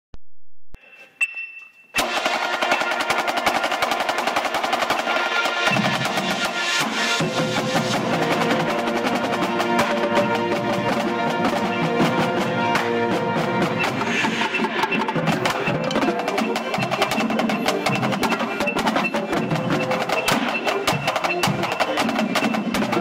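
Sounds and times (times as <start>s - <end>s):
snare drumline playing: 2.0s - 23.0s.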